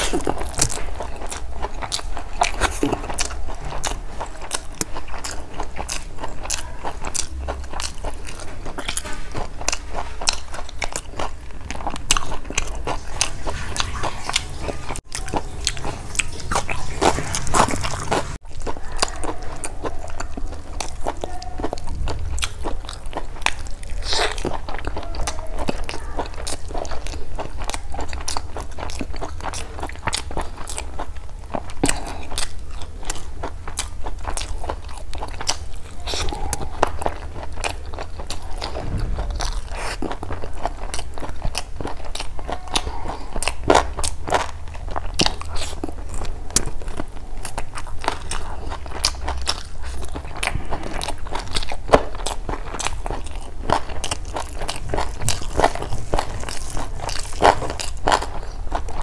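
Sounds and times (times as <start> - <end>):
wet chewing and biting: 0.0 - 59.0.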